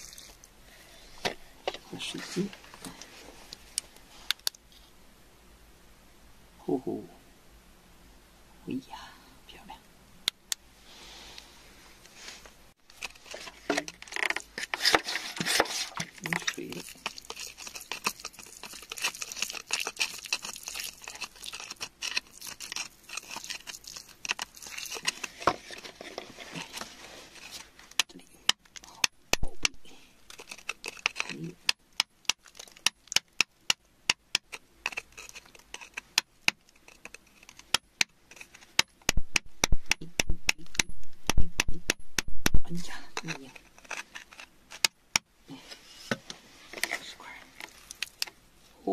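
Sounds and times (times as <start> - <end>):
soft hiss: 0.0 - 13.8, 45.3 - 48.9
metal tool scraping wet soil: 12.9 - 27.7, 34.8 - 36.1.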